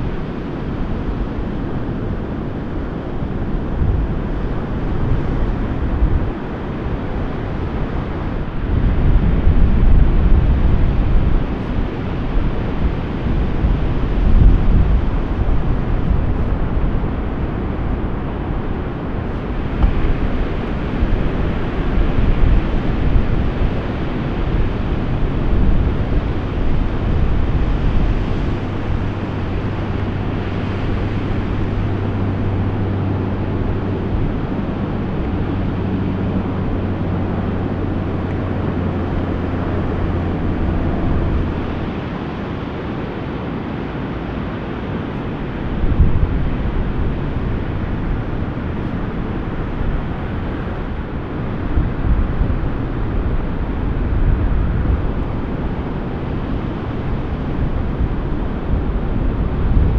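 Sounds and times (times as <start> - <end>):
ocean surf breaking: 0.0 - 59.9
steady low hum: 0.0 - 59.9
wind buffeting microphone: 0.0 - 59.9.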